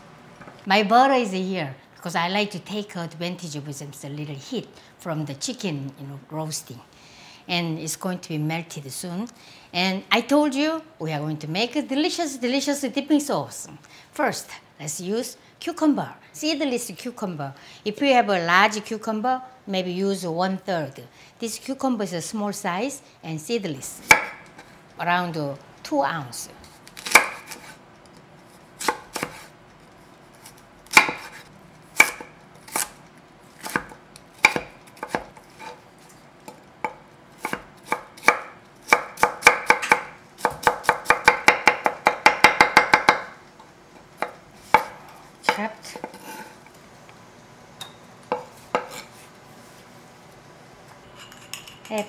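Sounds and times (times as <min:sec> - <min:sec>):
knife chopping on wooden board: 0:27.0 - 0:27.8, 0:28.8 - 0:29.5, 0:30.5 - 0:31.4, 0:32.0 - 0:32.9, 0:33.6 - 0:35.8, 0:36.5 - 0:43.4, 0:44.2 - 0:46.5, 0:48.3 - 0:49.1.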